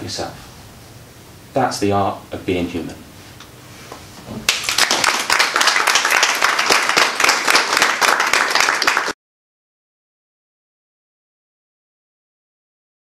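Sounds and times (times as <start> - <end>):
audience applauding: 4.5 - 9.2.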